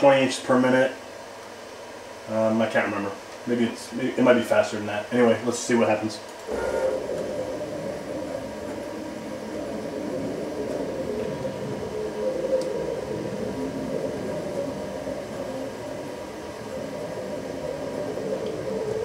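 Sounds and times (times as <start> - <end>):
milling machine motors humming: 6.2 - 19.0.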